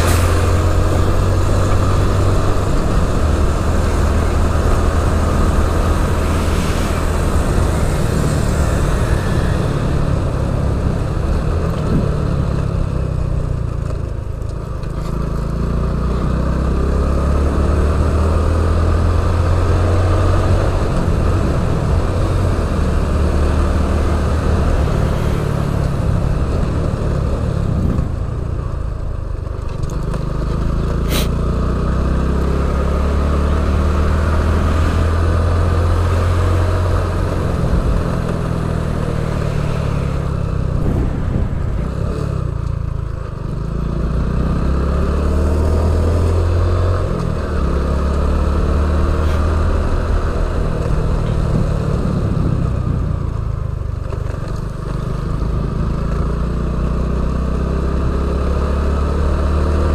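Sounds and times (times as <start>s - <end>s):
wind rumbling on microphone: 0.0s - 13.3s, 19.8s - 29.8s, 34.3s - 43.5s, 49.1s - 55.7s.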